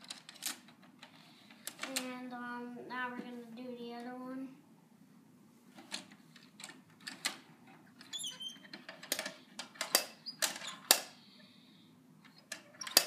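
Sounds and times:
plastic toy truck clicks and knocks: 8.8 - 11.1, 12.5 - 13.0.

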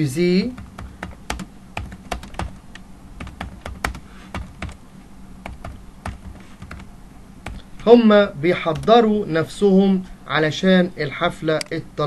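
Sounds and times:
faint low hum: 0.0 - 12.0
keyboard keys clicking: 0.6 - 4.8, 5.4 - 7.6.

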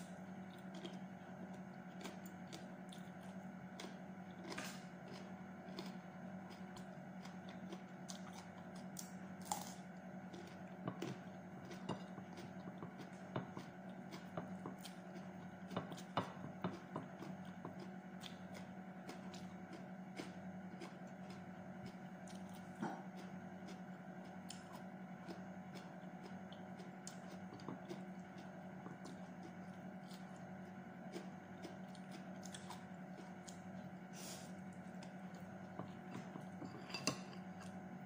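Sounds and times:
crunching and chewing vegetables: 0.0 - 38.0.

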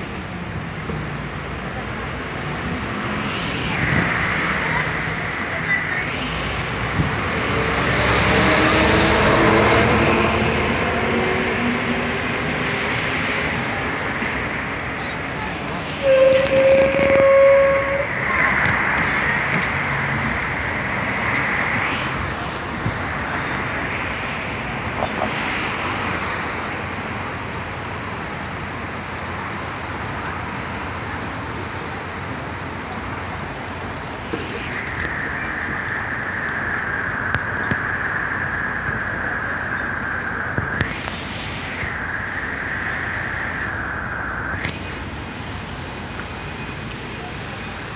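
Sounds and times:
diesel bus approaching: 0.0 - 47.9
street noise: 0.0 - 47.9.

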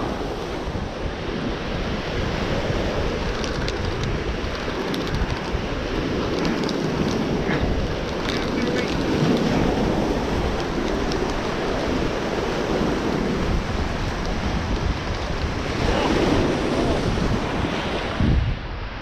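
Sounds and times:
surf breaking over boulders: 0.0 - 18.5
wind buffeting microphone: 0.0 - 19.0.

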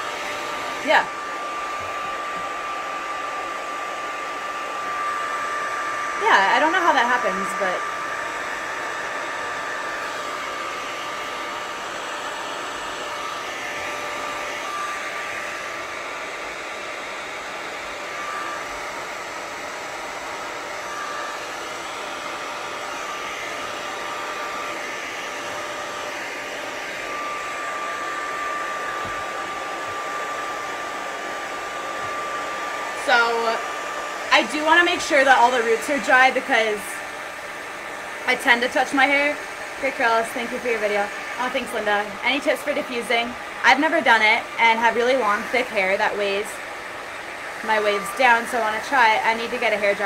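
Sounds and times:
hair dryer running: 0.0 - 50.0.

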